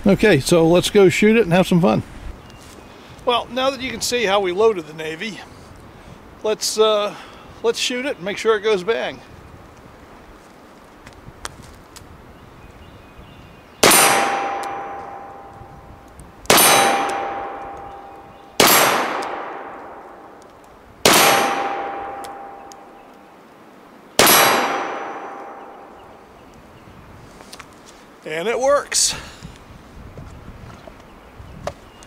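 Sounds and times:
revolver shots echoing: 13.8s - 15.5s, 16.5s - 20.4s, 21.0s - 23.0s, 24.2s - 26.0s
steel target clang: 13.8s - 15.5s, 16.5s - 20.0s, 21.1s - 23.0s, 24.2s - 25.9s.

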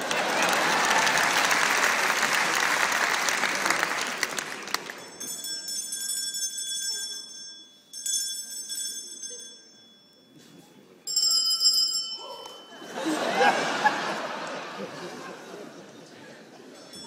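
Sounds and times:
bell ringing: 4.8s - 13.6s, 16.8s - 17.0s.

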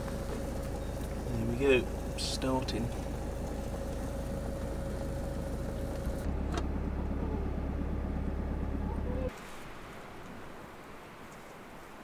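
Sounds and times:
diesel engine idling: 0.0s - 9.3s.

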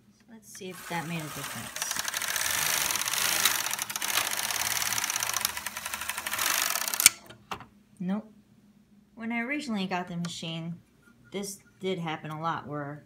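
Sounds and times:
knitting machine carriage clattering: 0.6s - 7.2s.

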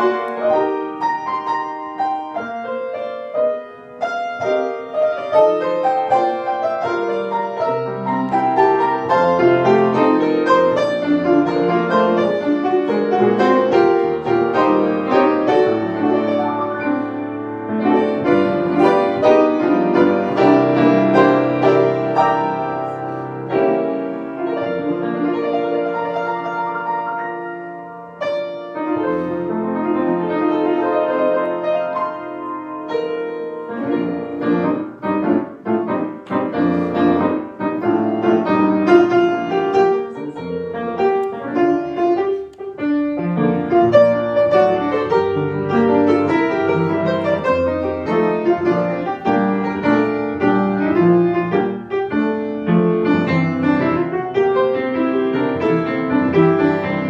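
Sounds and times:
solo grand piano: 0.0s - 57.0s.

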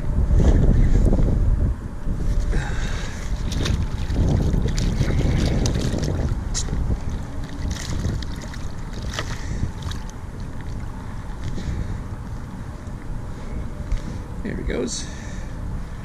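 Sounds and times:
wind buffeting microphone: 0.0s - 16.0s
water splashing against kayak: 3.2s - 11.6s.

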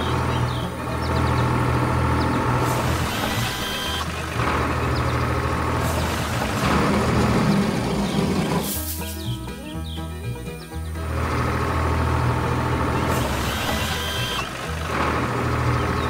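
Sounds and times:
background music: 0.0s - 16.0s
cartoon engine sound effect: 2.2s - 5.1s, 12.4s - 15.2s
short hisses: 8.6s - 9.3s.

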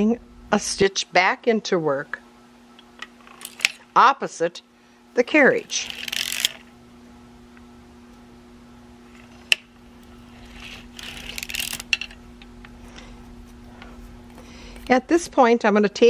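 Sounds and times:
steady low hum: 0.0s - 16.0s
sock machine clicking and rattling: 5.6s - 6.7s, 10.4s - 12.2s.

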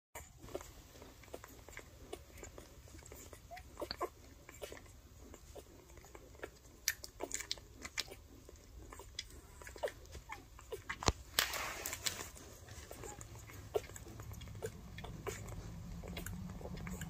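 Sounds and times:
puppies suckling: 0.2s - 17.0s
puppy squeaks: 12.8s - 17.0s.

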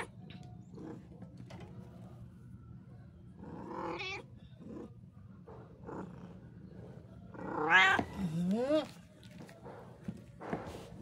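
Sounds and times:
cat meowing: 7.4s - 8.3s.

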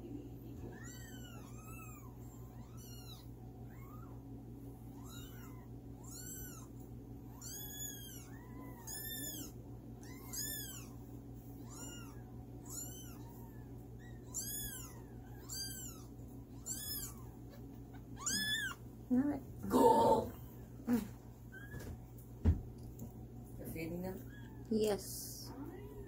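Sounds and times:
kittens mewing: 0.6s - 19.0s, 19.6s - 21.9s.

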